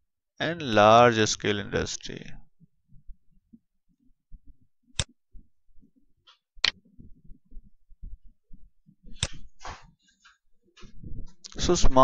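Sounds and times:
faint low thumps: 6.8s - 9.8s.

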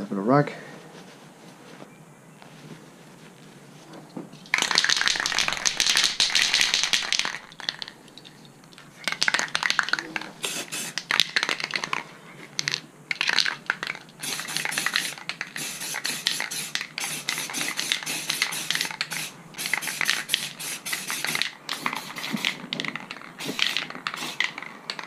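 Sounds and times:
spray paint can hissing: 4.5s - 8.3s, 9.0s - 12.0s, 12.6s - 25.0s.

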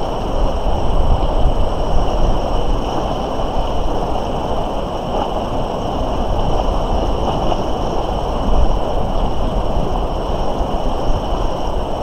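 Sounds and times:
river rushing: 0.0s - 12.0s
wind rumbling on microphone: 0.0s - 12.0s.

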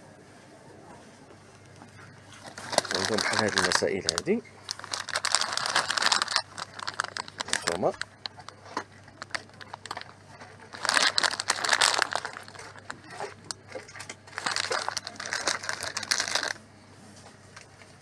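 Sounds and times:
plastic bag crinkling: 2.3s - 16.6s.

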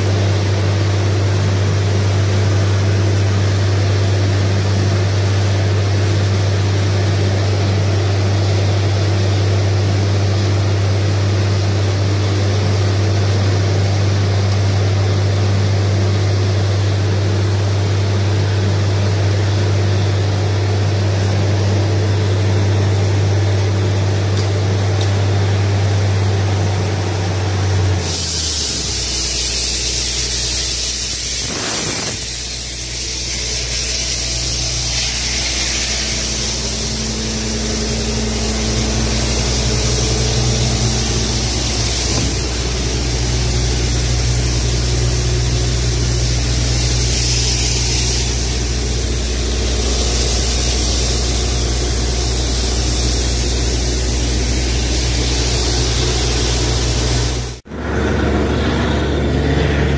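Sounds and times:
drilling rig engine drone: 0.0s - 59.9s
compressed air rushing: 23.6s - 58.7s
high hiss: 27.6s - 57.6s.

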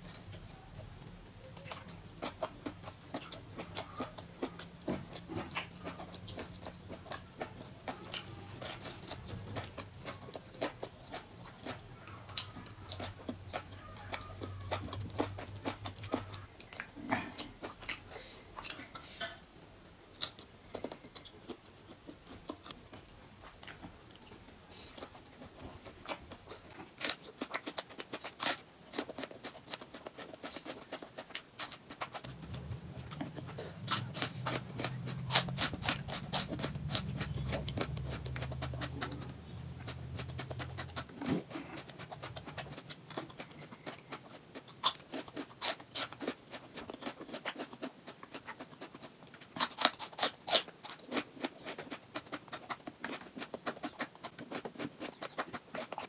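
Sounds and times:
wet chewing and lip-smacking: 0.0s - 56.0s
low hum: 32.2s - 43.1s.

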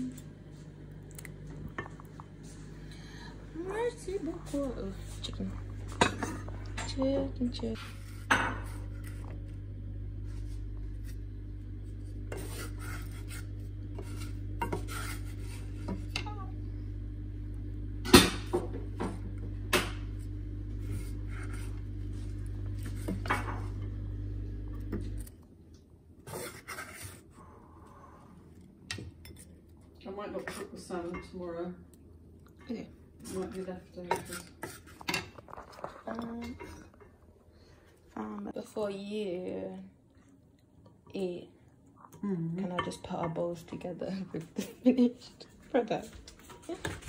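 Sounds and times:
steady low hum: 0.0s - 47.0s
wooden spatula scraping a frying pan: 12.2s - 16.1s, 20.7s - 23.8s, 26.3s - 27.3s, 33.3s - 36.0s.

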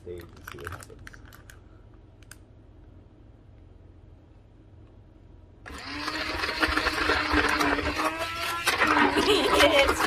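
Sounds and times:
stick blender motor hum: 5.6s - 10.0s
thick paste churning: 5.7s - 10.0s.

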